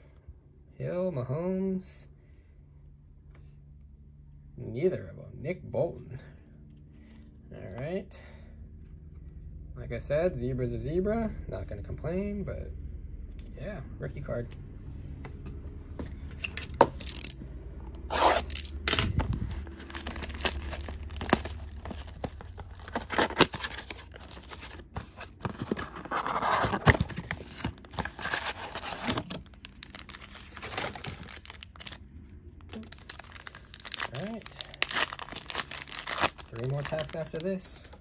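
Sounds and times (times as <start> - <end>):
wrappers tearing and crinkling: 17.0 - 17.4, 18.1 - 32.0, 32.6 - 37.7.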